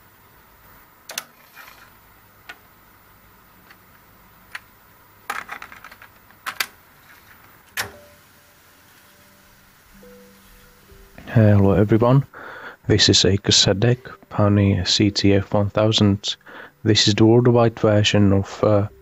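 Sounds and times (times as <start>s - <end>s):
cassette deck clicks and clunks: 7.7s - 8.0s.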